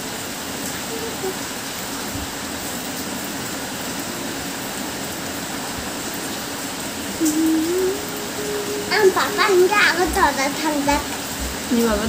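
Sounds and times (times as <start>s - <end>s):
steady background hiss: 0.0s - 12.0s
held tone rising in pitch: 7.2s - 11.6s.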